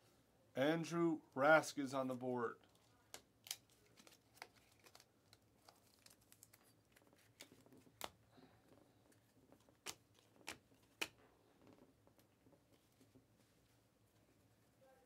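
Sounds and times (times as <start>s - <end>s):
cards snapping and tapping: 9.5s - 11.2s.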